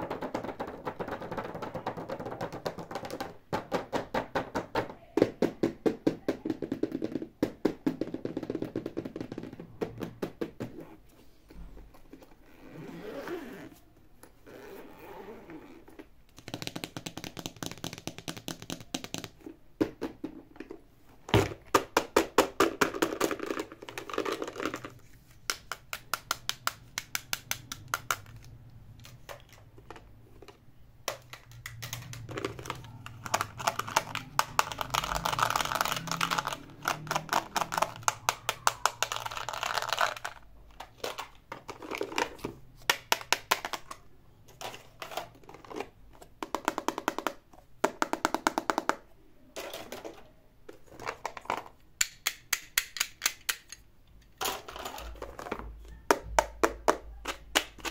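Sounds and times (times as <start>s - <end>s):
zipper clicking open: 12.4s - 13.8s, 14.4s - 16.0s
hard plastic toys handled: 15.9s - 57.9s.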